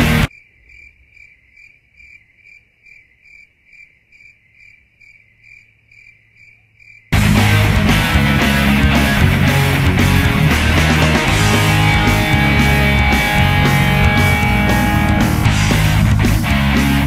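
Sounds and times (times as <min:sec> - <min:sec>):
rock music: 0:00.0 - 0:00.3, 0:07.2 - 0:17.0
cricket chirping: 0:00.0 - 0:07.2.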